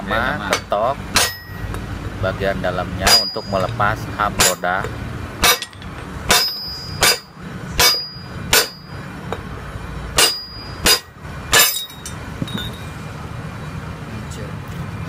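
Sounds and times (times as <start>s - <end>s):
hammer striking steel drift: 0.4s - 1.8s, 3.0s - 9.5s, 10.1s - 12.8s.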